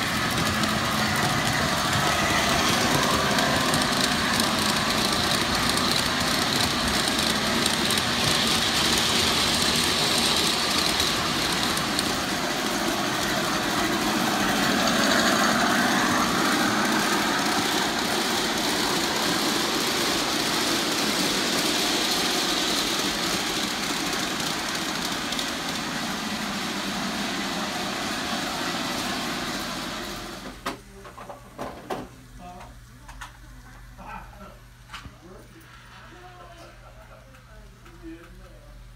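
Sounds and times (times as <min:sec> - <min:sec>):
model train wheels rumbling: 0:00.0 - 0:30.6.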